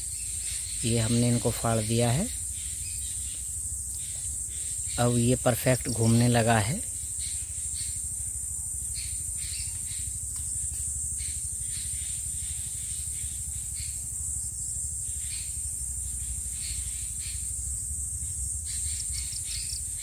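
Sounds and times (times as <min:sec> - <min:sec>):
high-pitched hiss: 0:00.0 - 0:20.0.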